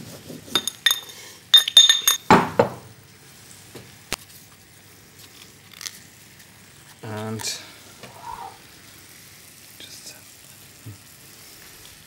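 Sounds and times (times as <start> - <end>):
pestle clinking in mortar: 0.5 - 2.3.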